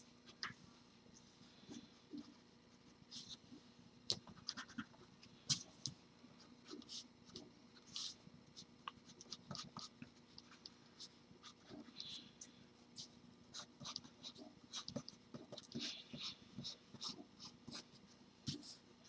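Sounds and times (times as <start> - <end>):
pencil scratching on paper: 4.3 - 5.6, 6.6 - 12.3, 13.0 - 18.8.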